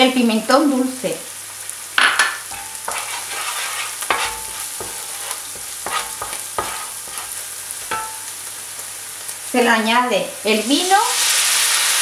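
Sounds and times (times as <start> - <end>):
vegetables sizzling in oil: 0.0 - 12.0
utensil knocking against pan: 4.1 - 7.2, 7.9 - 8.2.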